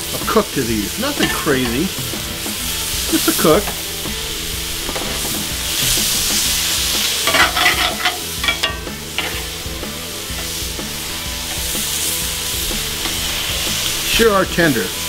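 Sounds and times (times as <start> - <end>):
steak sizzling on a griddle: 0.0 - 15.0
metal tongs scraping griddle: 1.0 - 2.4, 7.1 - 14.4.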